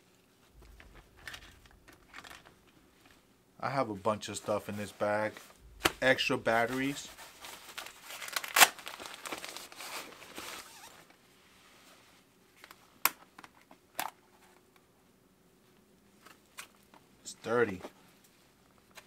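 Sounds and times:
fabric bag rustling: 0:05.4 - 0:11.0.

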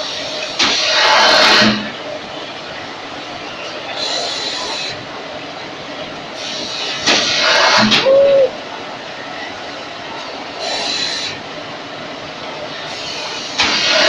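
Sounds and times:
hissing bursts of air: 0:06.4 - 0:08.0.

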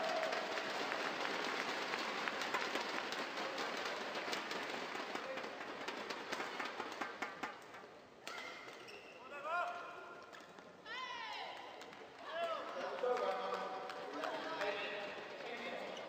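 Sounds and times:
crowd applauding: 0:00.0 - 0:07.6, 0:12.4 - 0:15.2.

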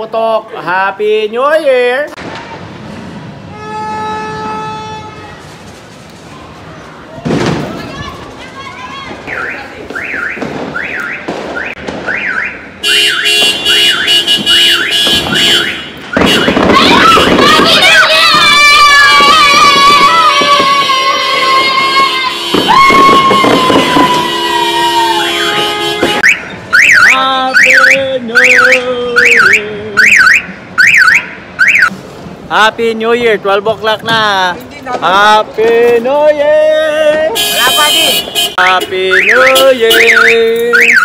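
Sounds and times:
car alarm siren whooping: 0:09.2 - 0:13.3, 0:15.6 - 0:31.9, 0:39.0 - 0:41.0
electronic alarm siren whooping: 0:26.2 - 0:31.9, 0:39.1 - 0:41.0.

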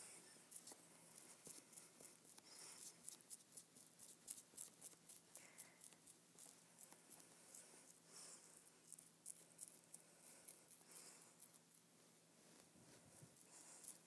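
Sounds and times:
foam brush scratchy strokes: 0:06.0 - 0:14.0.

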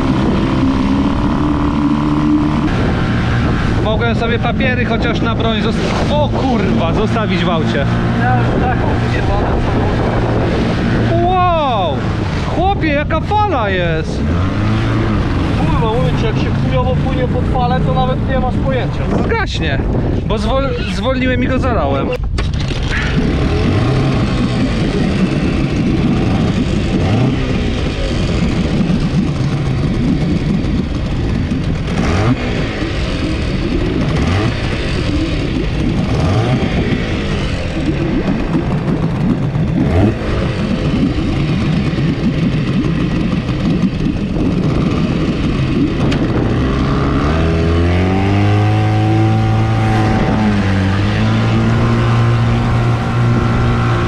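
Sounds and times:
outboard motor running: 0:00.0 - 0:54.0
wind: 0:00.0 - 0:54.0
water splashing: 0:22.6 - 0:54.0.

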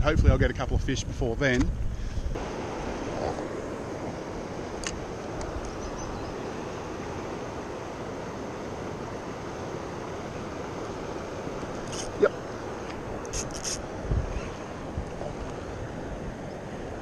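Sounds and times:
wind on microphone: 0:00.0 - 0:17.0
moving water: 0:01.5 - 0:17.0
small click: 0:04.8 - 0:05.8.

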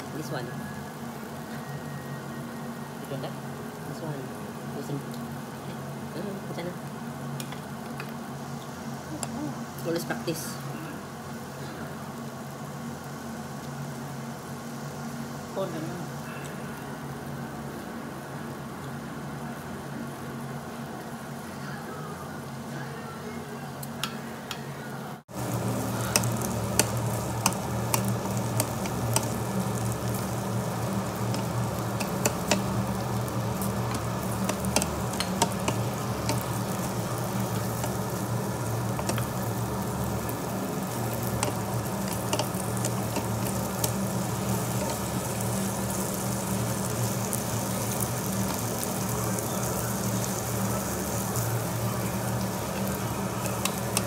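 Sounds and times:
meat sizzling on a grill: 0:00.0 - 0:24.3, 0:25.2 - 0:54.0
steady low hum: 0:00.0 - 0:54.0
crackles and pops: 0:25.3 - 0:54.0.

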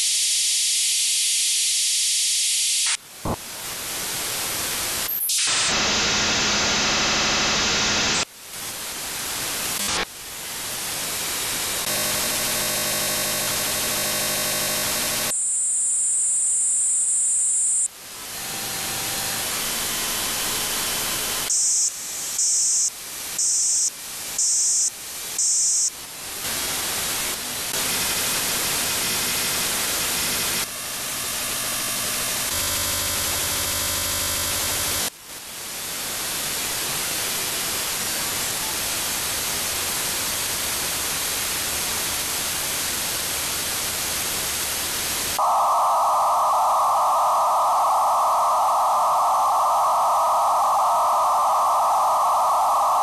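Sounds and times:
radio static hiss: 0:00.0 - 0:17.9, 0:35.5 - 0:53.0.

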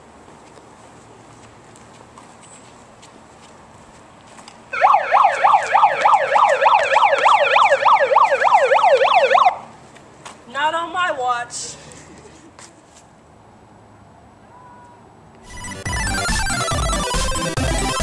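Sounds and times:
police siren yelping: 0:04.8 - 0:09.7, 0:15.5 - 0:18.0.

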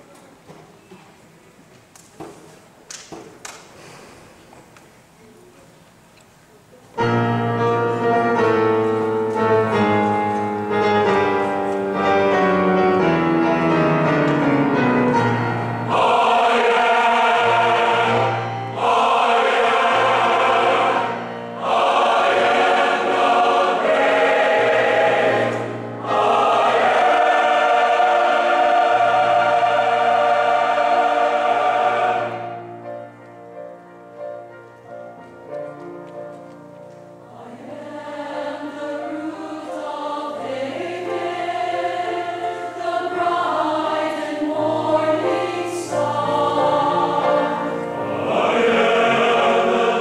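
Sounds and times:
piano accompaniment: 0:07.0 - 0:50.0
choir singing: 0:07.4 - 0:33.0, 0:37.2 - 0:50.0.

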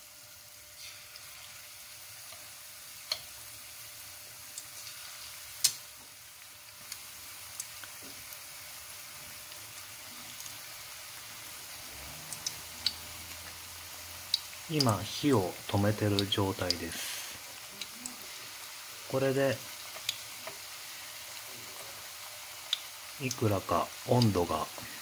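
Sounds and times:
chicken deep-frying sizzle: 0:00.0 - 0:25.0
oil popping and crackling: 0:04.5 - 0:08.5, 0:09.3 - 0:25.0.

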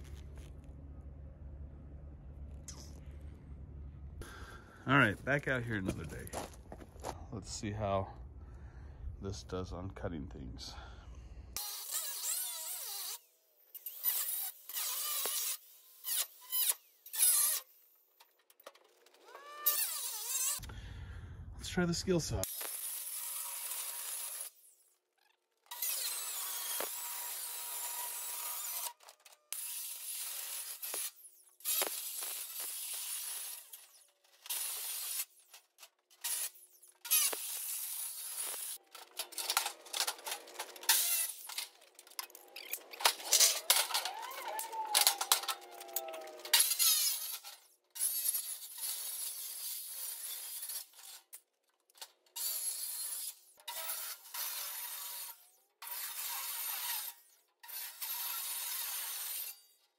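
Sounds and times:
circular saw cutting metal: 0:19.2 - 0:20.6, 0:22.4 - 0:24.8, 0:25.6 - 0:51.3, 0:52.3 - 0:59.8.

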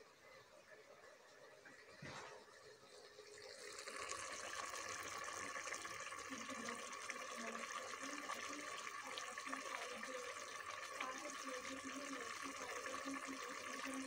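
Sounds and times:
meat sizzling in a pot: 0:03.0 - 0:14.0.

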